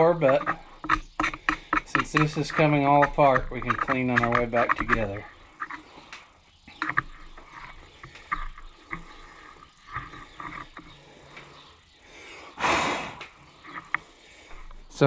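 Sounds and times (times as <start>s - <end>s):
loud rasping rush: 0.0s - 6.0s.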